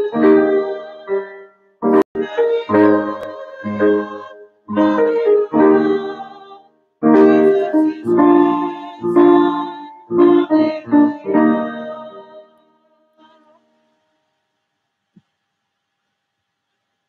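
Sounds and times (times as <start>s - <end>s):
choir singing: 0.0s - 12.6s
piano accompaniment: 0.0s - 12.6s.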